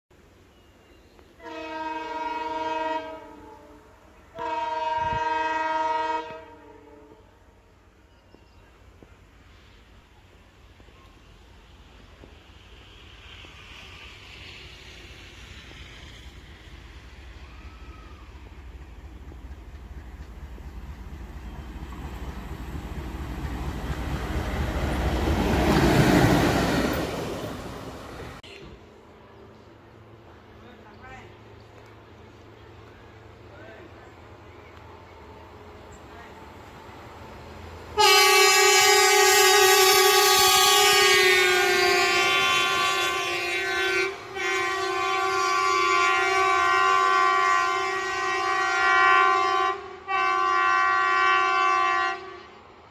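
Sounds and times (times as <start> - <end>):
machine horn blasts: 4.4 - 7.1, 38.0 - 52.4
locomotive passing at speed: 9.1 - 50.2.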